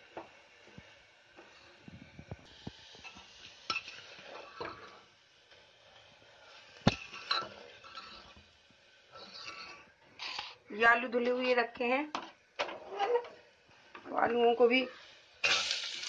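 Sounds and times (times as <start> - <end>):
metal spoon scraping a pot: 7.0 - 8.4, 9.1 - 10.6.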